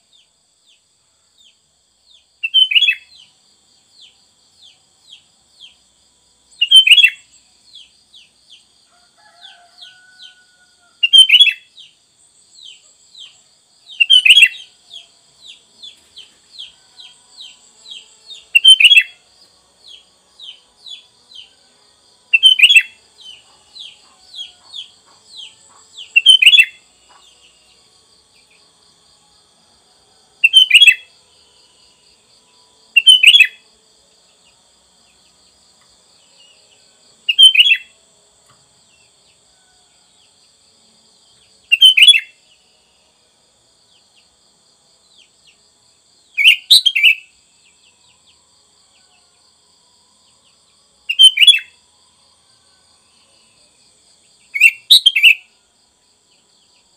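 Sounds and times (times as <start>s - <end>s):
bulbul singing: 13.9s - 15.1s, 17.5s - 19.2s, 22.3s - 27.3s, 30.4s - 31.1s, 33.0s - 33.6s, 51.1s - 51.7s, 54.6s - 55.4s.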